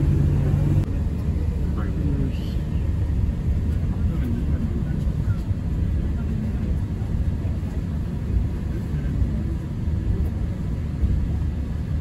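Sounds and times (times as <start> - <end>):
vehicle interior rumble: 0.0 - 12.0.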